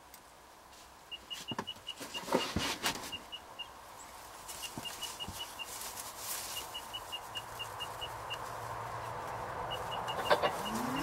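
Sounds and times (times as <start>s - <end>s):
small bird calling: 9.7s - 11.0s.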